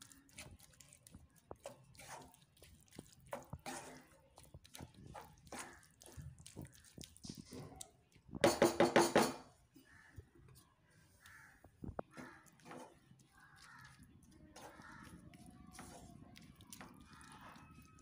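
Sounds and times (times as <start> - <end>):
spatula scraping a pan: 1.6 - 2.6, 3.2 - 6.3, 12.1 - 13.8, 14.5 - 16.2.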